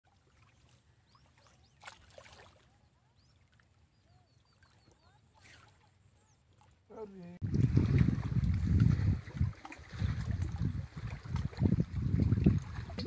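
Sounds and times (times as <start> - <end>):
faint bird chirps: 0.4 - 6.8.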